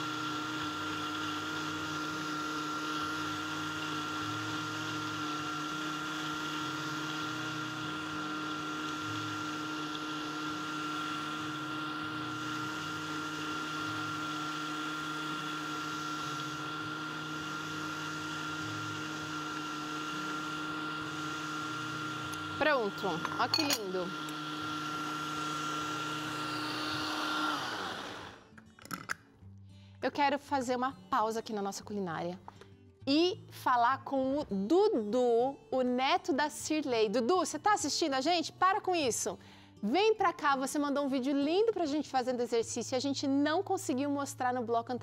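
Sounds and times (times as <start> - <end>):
blender motor whining: 0.0 - 28.6.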